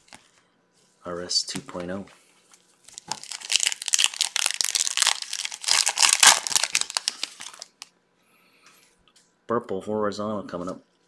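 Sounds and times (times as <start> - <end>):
foil wrapper tearing and crinkling: 2.9 - 7.9.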